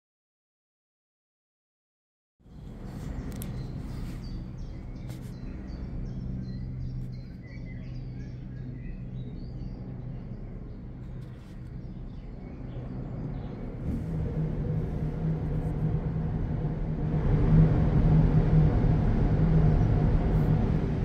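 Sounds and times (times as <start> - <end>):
steady low hum: 2.5 - 21.0
small birds chirping: 2.6 - 13.8.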